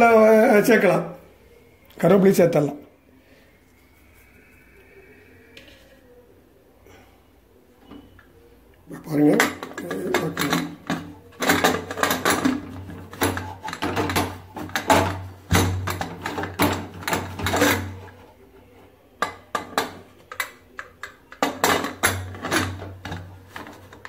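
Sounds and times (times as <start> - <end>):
metal lid clacks and scrapes: 9.4 - 18.3, 19.2 - 24.0.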